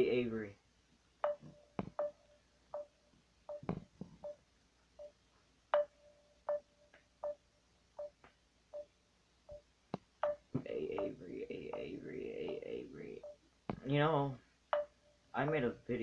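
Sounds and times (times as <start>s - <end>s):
phone beeps with clicks: 1.2s - 2.2s, 3.5s - 4.4s, 5.8s - 7.4s.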